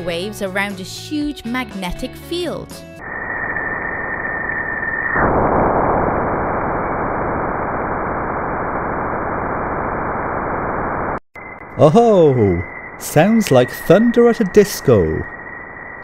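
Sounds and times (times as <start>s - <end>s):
steady high tone: 11.4s - 16.0s.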